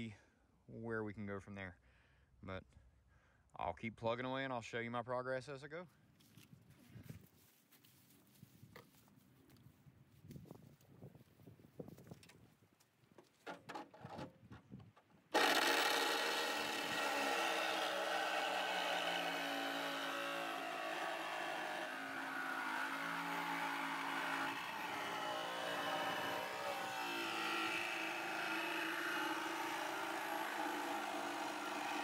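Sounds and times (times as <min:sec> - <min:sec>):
power saw cutting sheet metal: 0:15.4 - 0:32.0.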